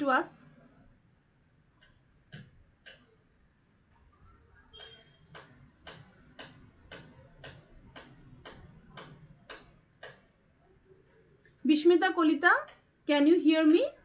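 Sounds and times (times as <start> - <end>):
faint even ticking: 1.7 - 3.2.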